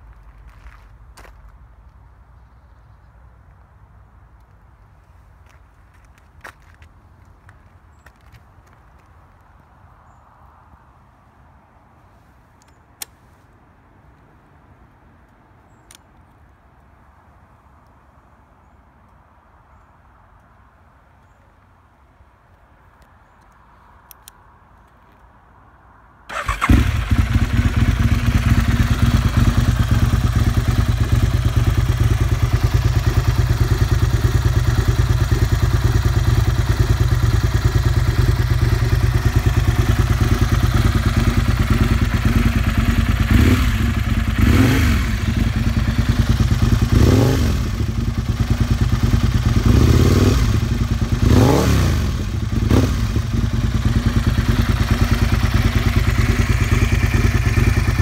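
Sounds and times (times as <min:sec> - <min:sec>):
motorcycle engine revving: 0:26.3 - 0:58.0
motorcycle engine starting and idling: 0:26.3 - 0:58.0.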